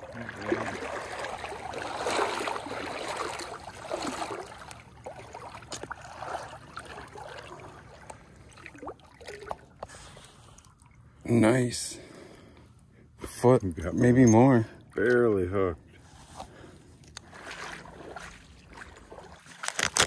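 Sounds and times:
stream flowing: 0.0s - 11.8s
water swishing around wading legs: 0.0s - 20.0s.

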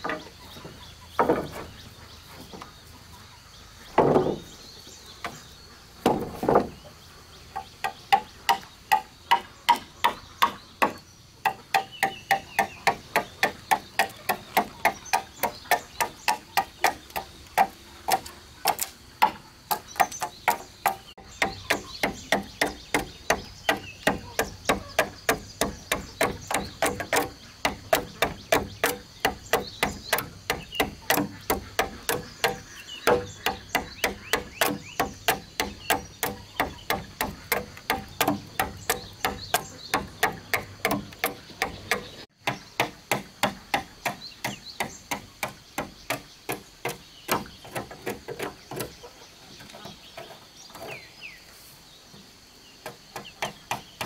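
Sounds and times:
hatchet chopping wood: 7.8s - 48.9s, 53.2s - 54.0s.

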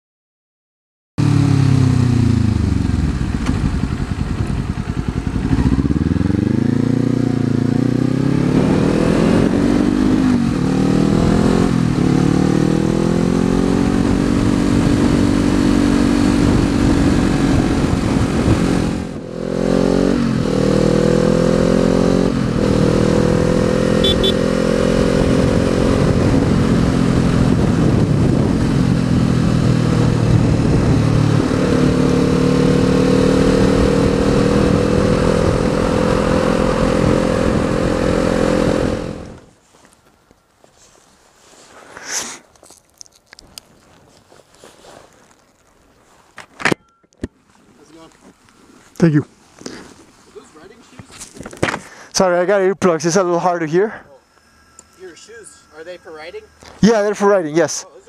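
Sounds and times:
motorcycle engine revving and shifting: 1.2s - 39.5s.

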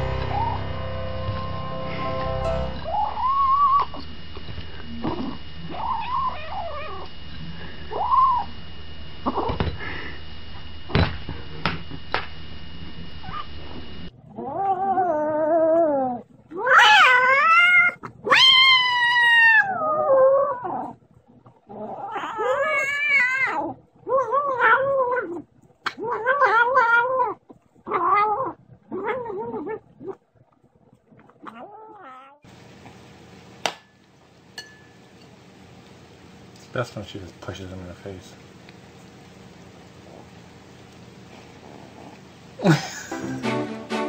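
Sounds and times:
kitten yowling: 2.8s - 4.0s, 5.6s - 7.1s, 7.9s - 8.5s, 14.4s - 20.9s, 21.8s - 29.8s
kitten mewing: 21.8s - 29.9s.

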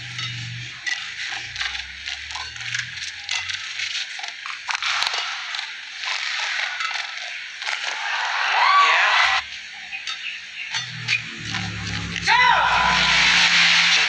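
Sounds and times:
crowd noise hiss: 3.5s - 14.0s.

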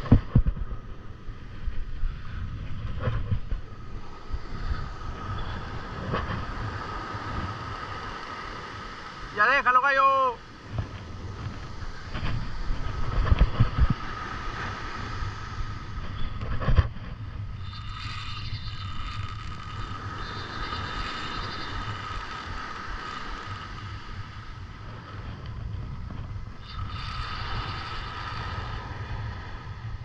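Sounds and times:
wind buffeting microphone: 0.0s - 30.0s
fishing reel gears whirring: 17.5s - 24.3s, 26.6s - 29.0s.

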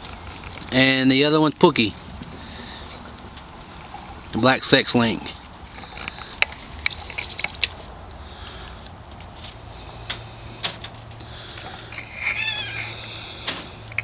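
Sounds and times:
hens calling: 11.2s - 14.0s.

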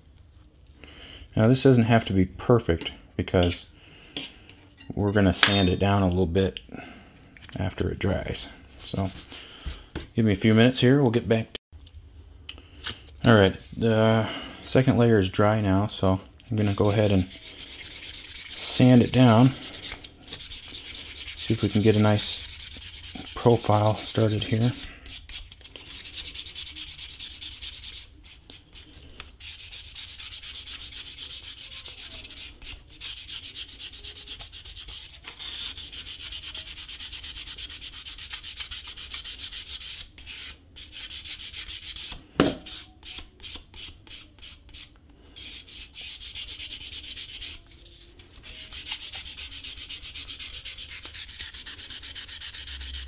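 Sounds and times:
sandpaper rubbing on leather edge: 16.7s - 47.6s, 48.4s - 53.0s.

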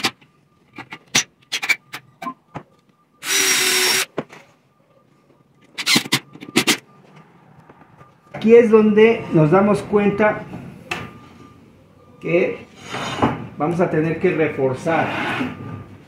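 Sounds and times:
cordless drill driving screw: 3.2s - 4.1s.

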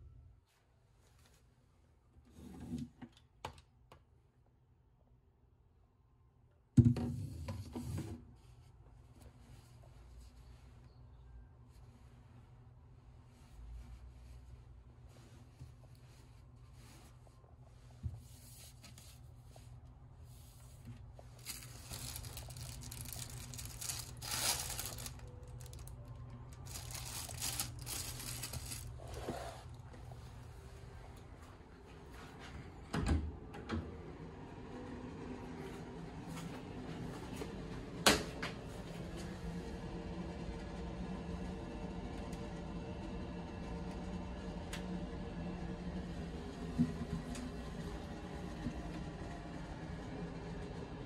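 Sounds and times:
plastic wrapping crinkling: 21.3s - 29.2s
clattering and cord rustling: 21.4s - 29.4s.

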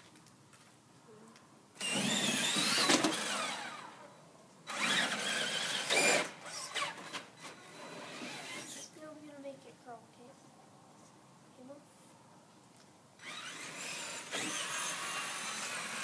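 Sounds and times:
toy truck motor whining: 1.8s - 4.0s, 4.7s - 8.9s, 13.2s - 16.0s.

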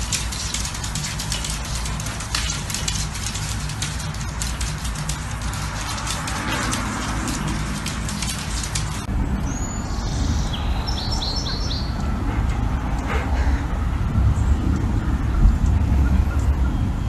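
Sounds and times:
sharp clicks and crackle: 0.0s - 9.1s
traffic rumble: 0.0s - 17.0s
wind: 0.0s - 17.0s.

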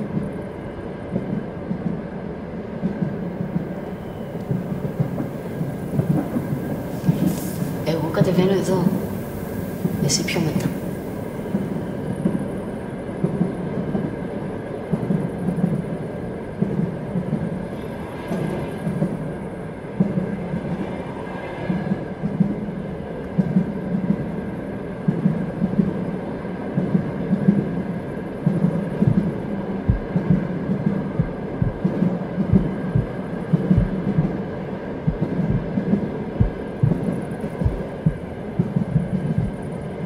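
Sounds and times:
low throbbing rumble: 28.4s - 34.4s, 35.0s - 40.0s
deep irregular thumps: 29.9s - 30.4s, 31.2s - 31.9s, 36.4s - 39.6s.

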